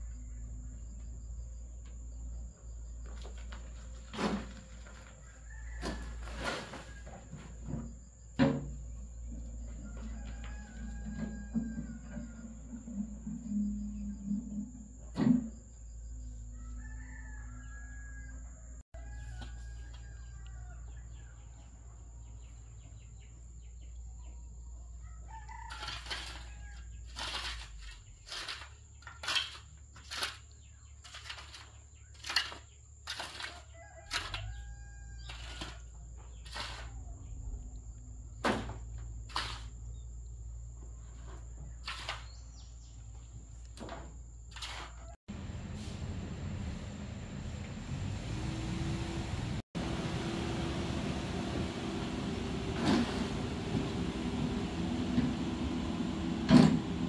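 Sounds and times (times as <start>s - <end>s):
rooster crowing: 4.9s - 7.4s, 9.6s - 15.0s, 16.4s - 21.6s, 25.0s - 27.0s, 33.5s - 36.0s.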